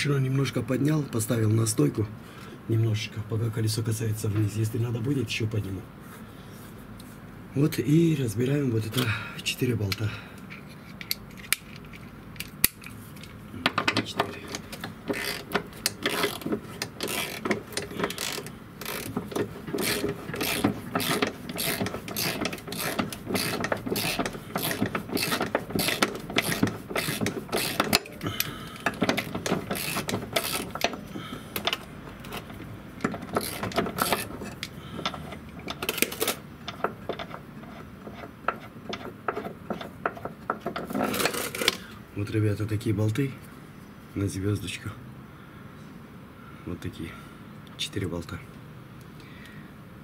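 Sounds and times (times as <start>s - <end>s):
socket ratchet clicking: 10.4s - 37.4s.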